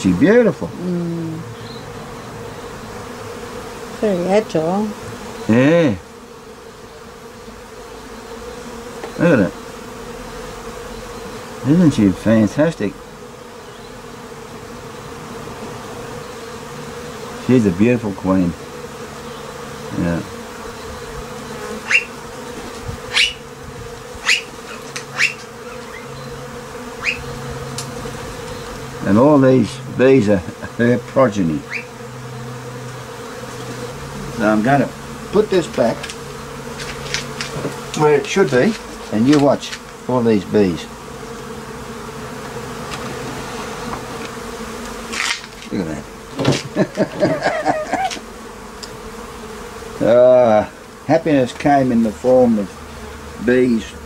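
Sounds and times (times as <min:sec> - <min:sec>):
honey bees buzzing: 0:00.0 - 0:54.0
sharp rising chirps: 0:23.1 - 0:23.4, 0:24.2 - 0:26.4, 0:27.0 - 0:27.4.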